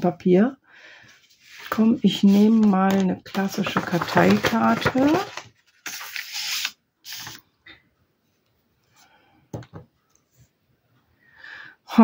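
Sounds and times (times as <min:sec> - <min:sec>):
paper rustling: 0:01.2 - 0:07.4.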